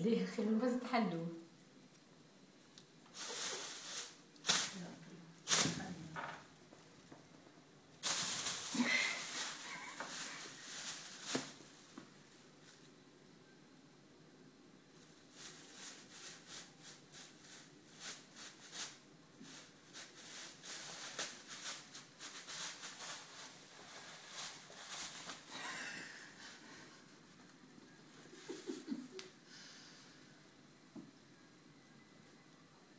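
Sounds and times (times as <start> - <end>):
plastic bag crinkling: 3.1 - 7.2, 8.0 - 13.0, 15.0 - 26.3.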